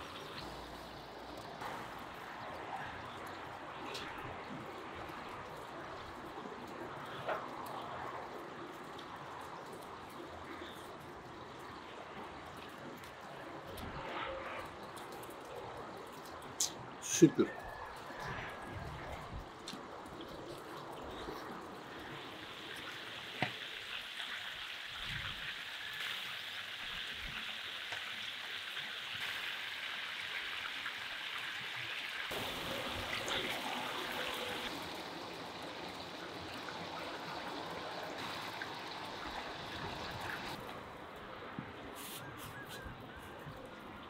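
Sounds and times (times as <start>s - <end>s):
fish sizzling in hot oil: 22.0s - 40.6s.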